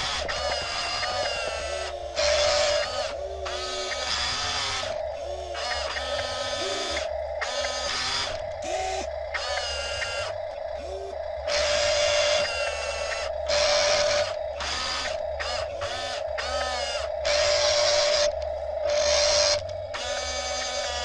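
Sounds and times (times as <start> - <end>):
toy electric motors whirring: 0.0 - 21.0.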